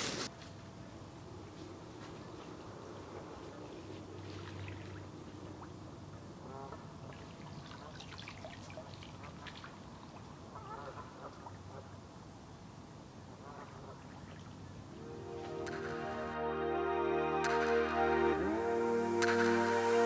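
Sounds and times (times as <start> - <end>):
water sloshing and trickling: 3.0 - 12.0, 13.8 - 14.9
small splashes: 3.5 - 12.0, 13.7 - 14.9.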